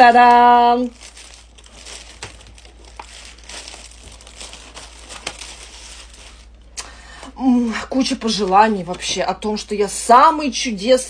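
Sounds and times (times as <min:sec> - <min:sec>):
plastic wrapping crinkling: 0:00.0 - 0:06.8.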